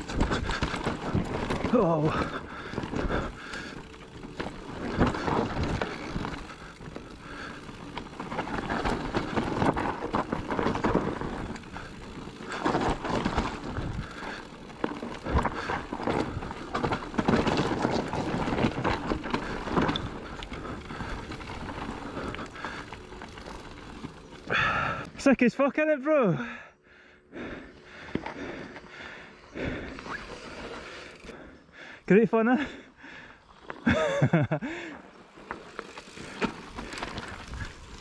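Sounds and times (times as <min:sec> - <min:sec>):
bike rattling over bumps: 0:00.0 - 0:25.6, 0:27.3 - 0:32.0, 0:32.6 - 0:38.0
tyres crunching over dirt: 0:00.0 - 0:25.8, 0:33.5 - 0:38.0.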